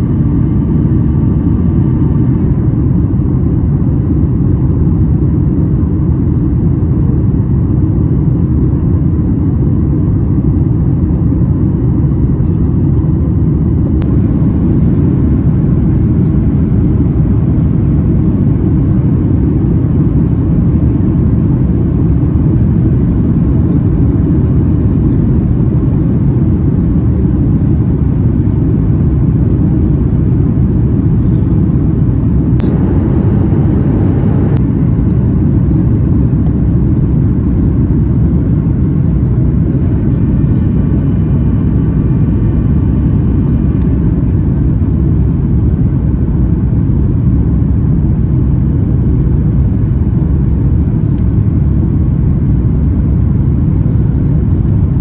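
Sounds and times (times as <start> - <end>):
aircraft cabin engine rumble: 0.0 - 55.0
faint thin whine: 10.4 - 46.5.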